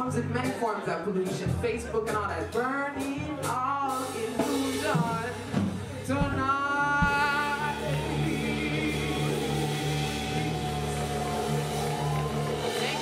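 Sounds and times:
woman singing into a microphone: 0.0 - 10.0
electronic keyboard chords: 5.8 - 13.0.

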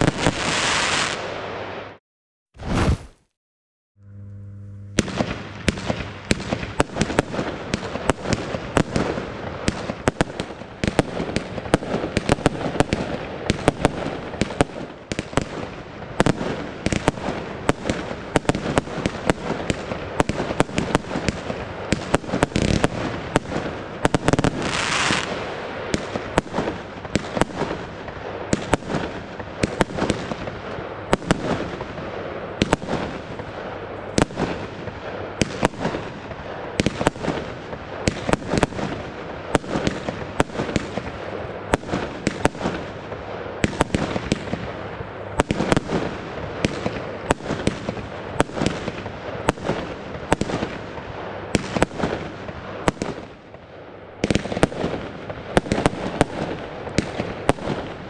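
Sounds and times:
fireworks launching and bursting: 0.0 - 2.0, 2.6 - 3.3, 4.1 - 58.0
firework hiss: 2.6 - 3.2, 24.2 - 25.7.

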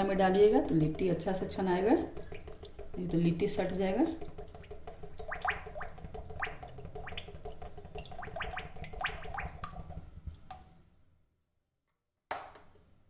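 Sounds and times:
oil glugging into pan: 0.8 - 10.4.

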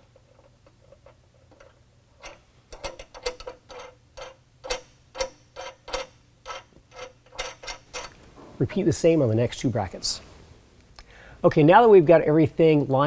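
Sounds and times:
nuts spun onto bolts clicking: 0.1 - 8.2.

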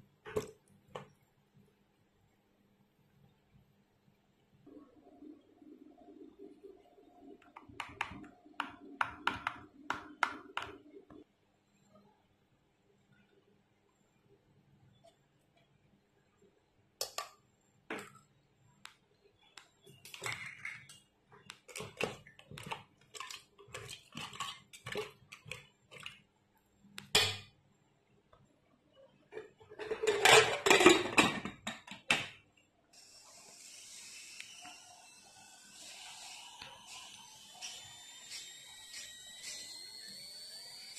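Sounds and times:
corn cobs clattering in metal pot: 21.6 - 26.2, 29.6 - 32.3.

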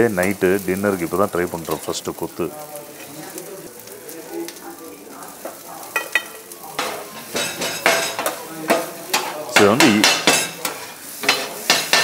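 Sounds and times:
food sizzling on griddle: 0.0 - 12.0
metal blades clanking on griddle: 5.4 - 12.0.

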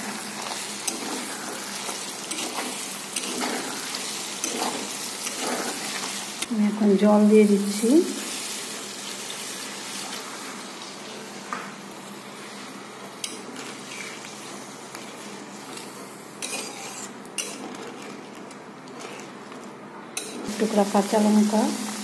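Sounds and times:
food sizzling: 0.0 - 19.5, 20.2 - 22.0
metal spatula scraping pan: 16.4 - 18.2.

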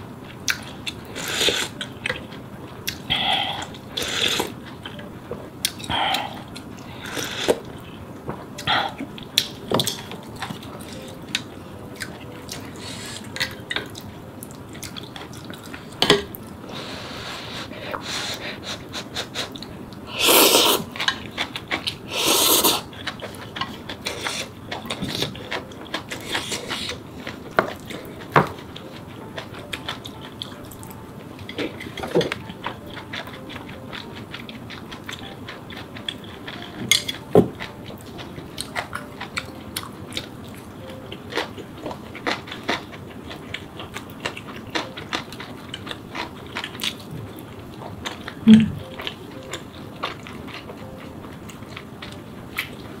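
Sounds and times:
wet chewing: 0.4 - 16.6, 17.7 - 53.0
person slurping noodles: 3.1 - 4.6, 16.8 - 20.9, 22.1 - 22.8
sharp mouth clicks: 48.4 - 48.8.

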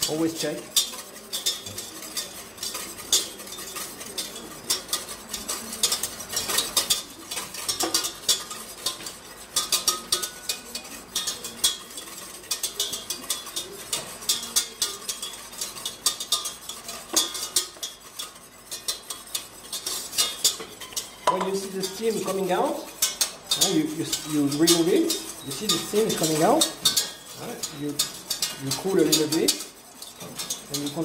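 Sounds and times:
whisk clicking against saucepan: 0.0 - 31.0.

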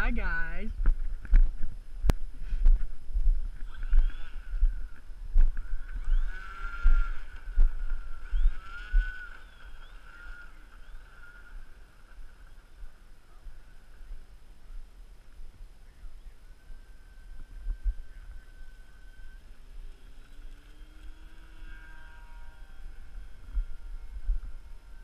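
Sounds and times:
wind thumps on microphone: 0.7 - 9.3
model airplane motor whining: 3.5 - 14.0, 16.4 - 25.0.

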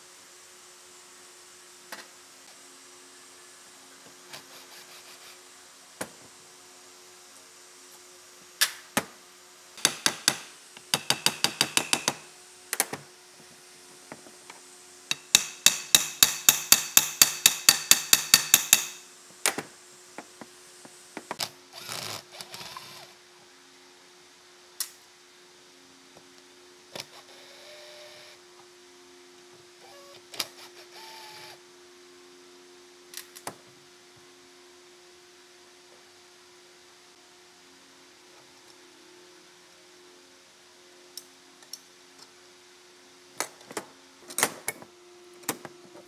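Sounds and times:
faint steady hum: 0.0 - 46.0
rapid sharp tool taps: 9.8 - 12.2, 15.1 - 19.0.

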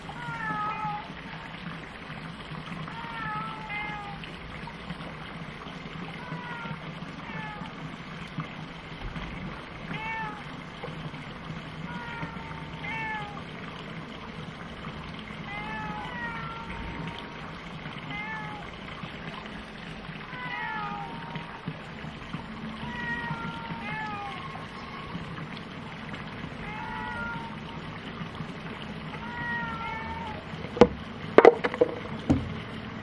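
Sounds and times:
cat meowing: 0.2 - 1.1, 3.0 - 4.2, 9.9 - 10.4, 11.9 - 13.4, 15.5 - 17.2, 18.1 - 18.6, 20.3 - 21.5, 22.8 - 25.2, 26.6 - 27.6, 29.2 - 30.5.

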